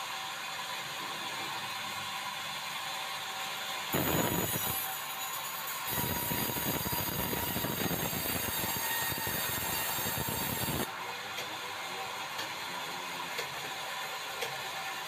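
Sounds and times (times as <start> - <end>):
band saw cutting wood: 3.9 - 15.0.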